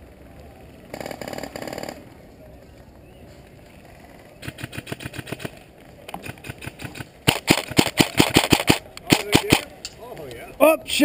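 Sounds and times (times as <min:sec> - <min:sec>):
airsoft rifle full-auto firing: 0:06.2 - 0:09.7.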